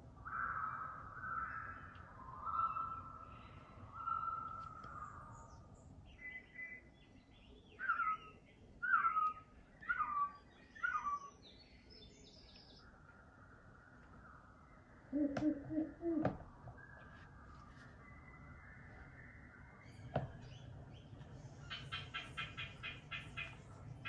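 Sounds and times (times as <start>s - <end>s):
birds calling: 0.2s - 12.9s, 19.8s - 24.0s.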